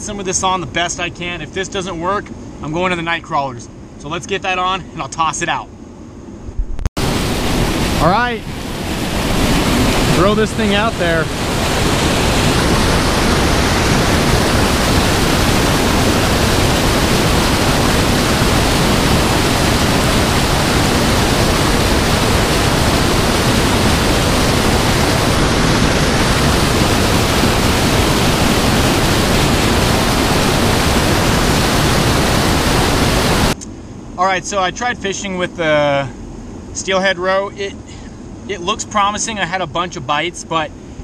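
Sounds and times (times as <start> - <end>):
loud rushing water: 7.0 - 33.6.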